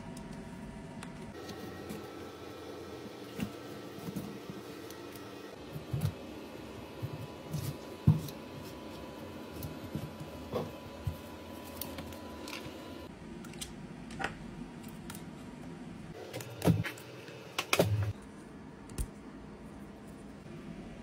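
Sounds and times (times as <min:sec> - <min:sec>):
room hum: 0:00.0 - 0:21.0.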